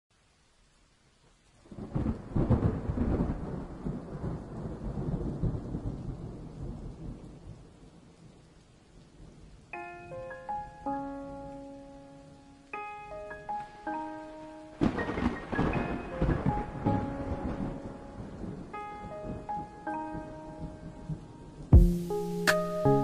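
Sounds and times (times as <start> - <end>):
thunderclap rumbling: 1.7 - 8.0, 14.8 - 21.9
piano notes: 9.7 - 23.0.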